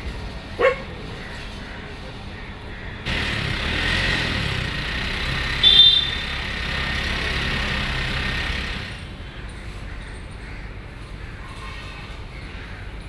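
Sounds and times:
passing traffic: 0.0s - 11.0s
car horn toot: 5.6s - 6.4s.

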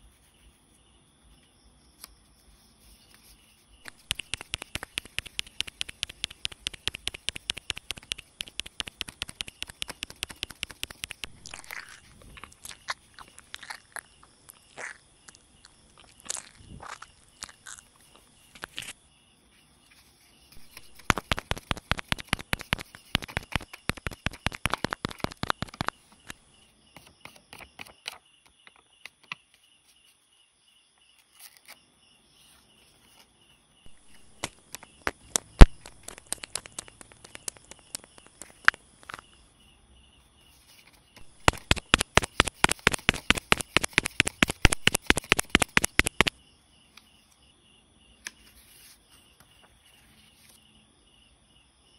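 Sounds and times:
paper pestle tapping: 3.8s - 11.9s, 20.6s - 26.0s, 33.9s - 39.2s, 41.2s - 46.3s.

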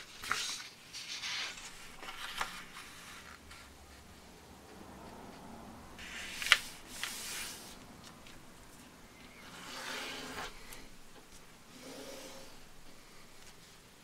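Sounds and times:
paper rustling: 0.0s - 3.7s, 6.0s - 11.5s
hand swishing across paper: 6.0s - 7.8s.

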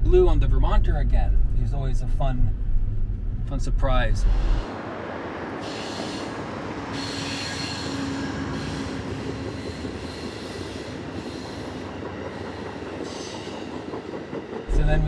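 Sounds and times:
diesel locomotive hum: 0.0s - 15.0s
train wheels rumbling on rail: 4.4s - 15.0s.

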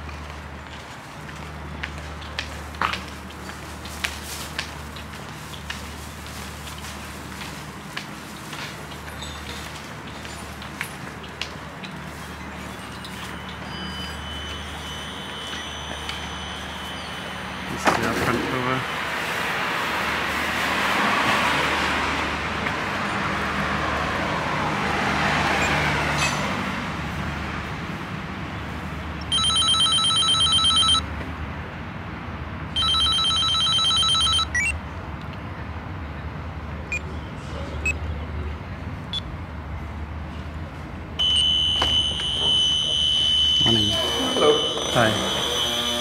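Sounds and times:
car passing: 13.8s - 29.5s
electronic intercom ring tones: 29.3s - 31.0s, 32.8s - 34.8s, 41.2s - 46.0s
electric door buzzer: 41.2s - 46.0s.

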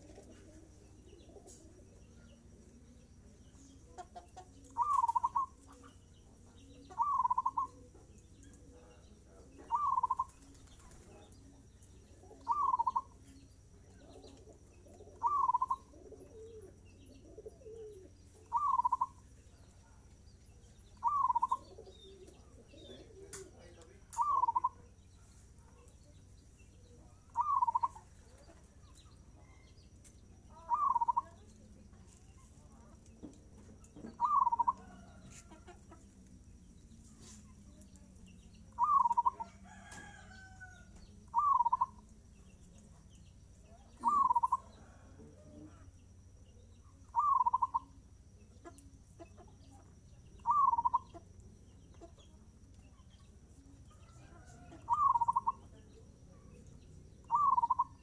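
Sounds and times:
dove cooing: 0.0s - 2.8s, 3.8s - 11.3s, 12.1s - 13.2s, 13.8s - 19.3s, 21.0s - 24.8s, 27.0s - 28.5s, 30.5s - 31.5s, 34.0s - 35.6s, 38.7s - 40.6s, 41.3s - 42.0s, 44.0s - 45.9s, 47.1s - 47.9s, 50.4s - 51.2s, 54.2s - 55.6s, 57.2s - 58.0s.

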